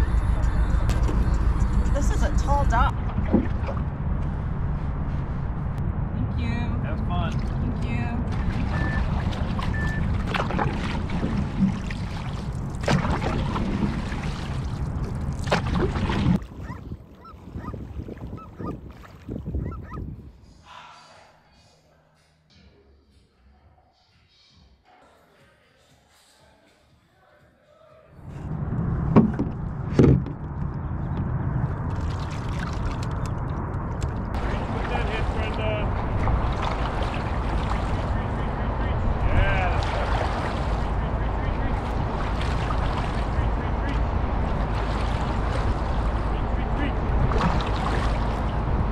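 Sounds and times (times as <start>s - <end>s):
wind rumble on microphone: 0.0s - 20.5s, 28.2s - 48.9s
paddle splashing into water: 2.9s - 3.9s, 8.3s - 19.4s, 34.4s - 38.4s, 39.7s - 41.0s, 41.7s - 46.4s, 47.2s - 48.6s.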